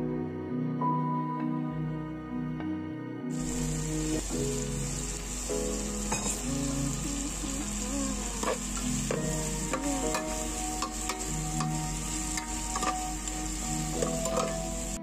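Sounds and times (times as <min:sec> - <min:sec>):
chicken sizzling in hot oil: 0:03.3 - 0:15.0.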